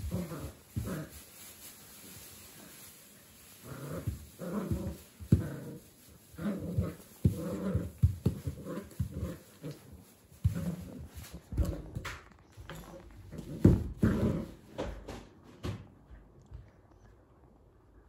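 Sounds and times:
puppy play-growling: 0:00.0 - 0:01.6, 0:03.4 - 0:15.1.

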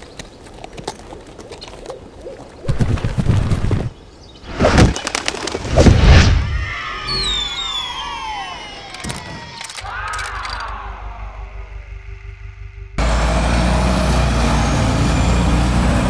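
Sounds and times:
falling whistle-like glides: 0:06.2 - 0:12.9.

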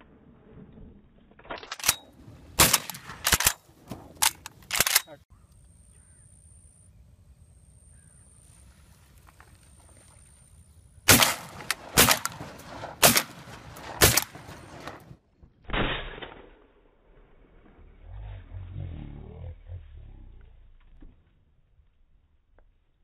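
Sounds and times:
fainter gunshots: 0:02.6 - 0:03.6, 0:11.1 - 0:15.1
loud shotgun shots: 0:02.6 - 0:03.6, 0:11.1 - 0:15.0.

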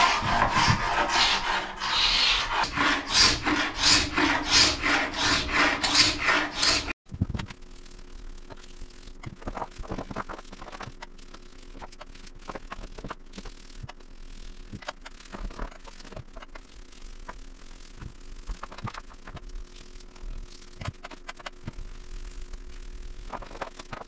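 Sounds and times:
scratching and rubbing on wood: 0:00.0 - 0:07.0.

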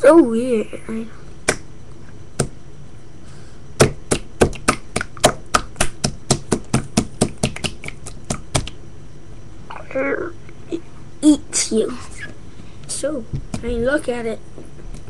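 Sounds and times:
slime squeezed with wet pops: 0:03.8 - 0:08.8.

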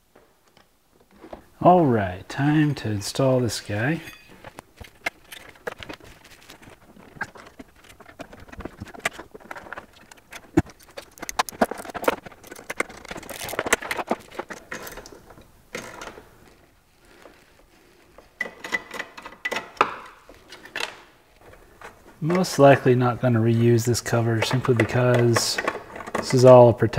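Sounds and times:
tools clicking on plastic case: 0:04.4 - 0:16.2, 0:24.4 - 0:26.5.

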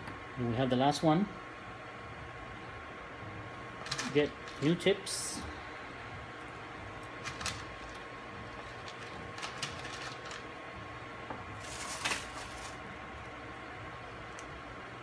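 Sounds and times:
pipette tips rustling: 0:03.8 - 0:04.9, 0:06.4 - 0:10.7, 0:11.5 - 0:13.4.

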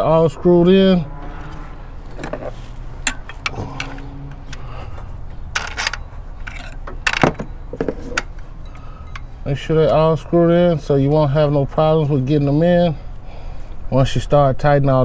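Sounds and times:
steady low hum: 0:00.0 - 0:15.0
metallic clicks of bolts and tools: 0:02.1 - 0:09.4.

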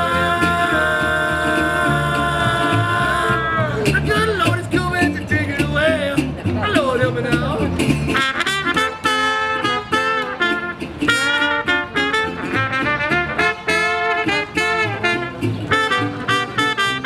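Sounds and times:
trombone: 0:00.0 - 0:03.8, 0:08.1 - 0:17.0
trumpet: 0:00.0 - 0:03.8, 0:08.1 - 0:17.0
strummed guitar: 0:00.0 - 0:17.0
walking upright bass: 0:00.0 - 0:17.0.

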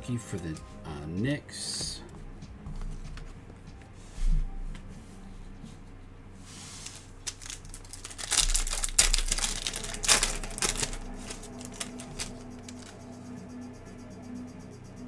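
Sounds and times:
cards clicking and rustling: 0:06.8 - 0:13.0
wrapper crinkling and tearing: 0:06.8 - 0:13.0.

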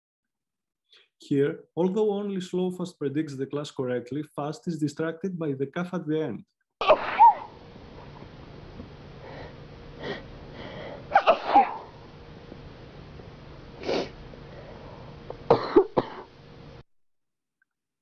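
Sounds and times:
faint steady hum: 0:02.4 - 0:16.8
person coughing: 0:06.8 - 0:07.5, 0:11.1 - 0:11.9, 0:15.5 - 0:16.3
person sneezing: 0:06.8 - 0:07.5, 0:11.1 - 0:11.9.

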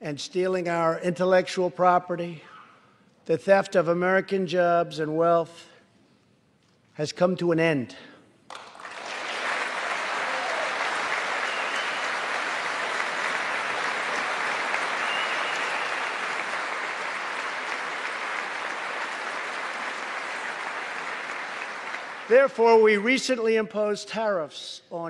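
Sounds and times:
large crowd applauding: 0:08.5 - 0:22.9.

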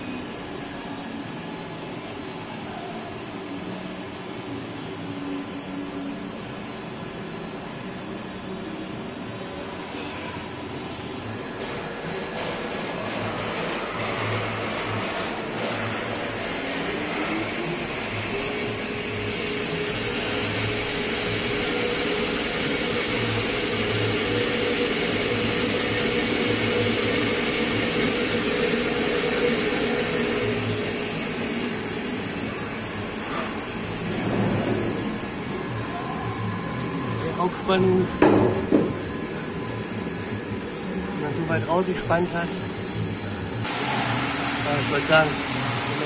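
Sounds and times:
lathe spindle whining: 0:10.7 - 0:46.0.

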